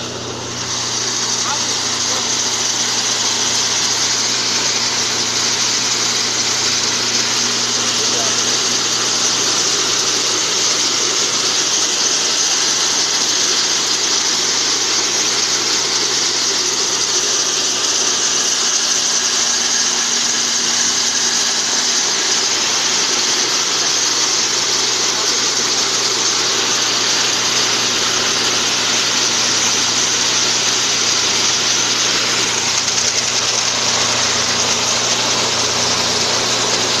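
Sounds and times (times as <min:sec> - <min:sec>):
motor and blower hum: 0:00.0 - 0:37.0
peanuts rattling through sheller: 0:00.0 - 0:37.0.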